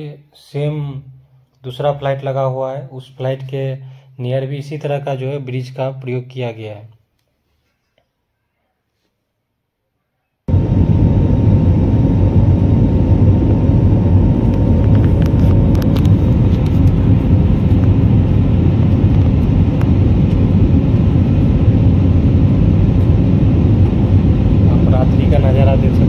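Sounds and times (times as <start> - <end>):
aircraft engine rumble: 10.5 - 26.0
faint steady hum: 10.5 - 26.0.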